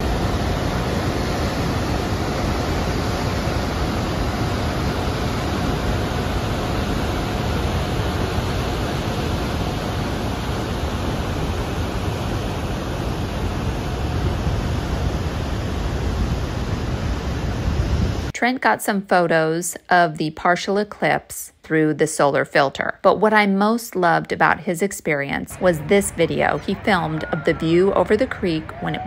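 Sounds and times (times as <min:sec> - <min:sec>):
water rushing over a dam: 0:00.0 - 0:18.3.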